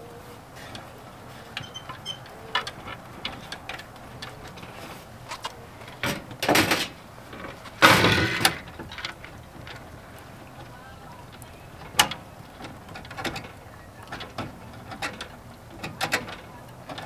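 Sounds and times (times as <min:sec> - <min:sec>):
plastic cover scraping metal: 0:04.3 - 0:09.3.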